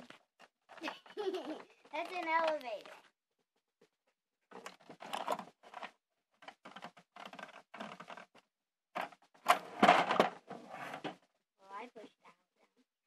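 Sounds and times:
plastic toys clicking and clattering: 0.0 - 3.1, 4.5 - 8.4, 9.0 - 11.2.

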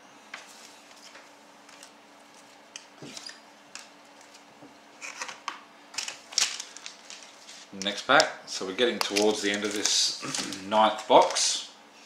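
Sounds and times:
card packet crinkling: 5.0 - 11.6
trading cards tapping and clicking: 7.8 - 11.4.

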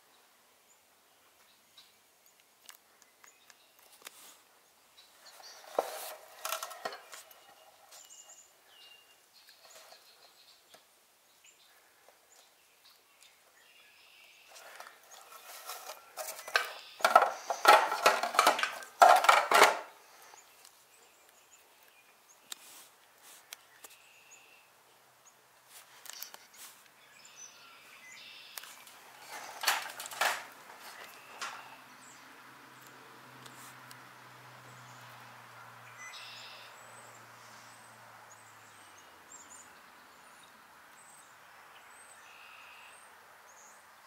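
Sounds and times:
rustling and knocking: 5.3 - 8.1, 14.6 - 19.9, 29.1 - 31.7
clicks and light clatter: 5.4 - 8.2, 14.6 - 19.9, 28.6 - 31.7.

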